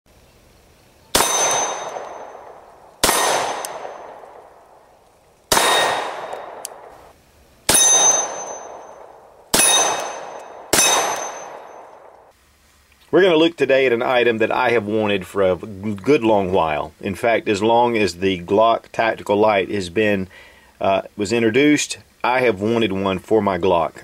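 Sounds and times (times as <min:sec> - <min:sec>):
pistol shots hitting steel target: 0:01.1 - 0:04.6, 0:05.5 - 0:07.0, 0:07.7 - 0:12.3.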